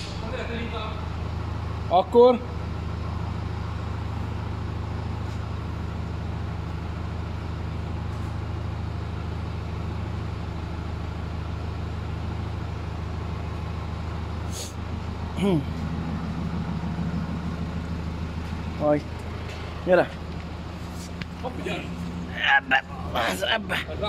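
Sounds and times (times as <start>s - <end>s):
vehicle engine idling: 0.0s - 24.0s.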